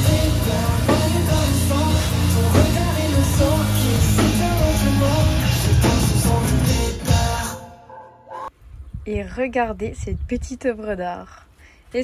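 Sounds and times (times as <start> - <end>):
drum kit beat: 0.0 - 7.6
person singing: 0.0 - 8.5.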